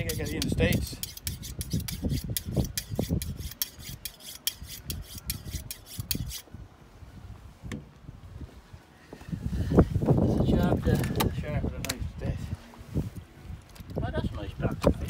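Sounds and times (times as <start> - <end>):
knife honed on sharpening rod: 0.0 - 6.5.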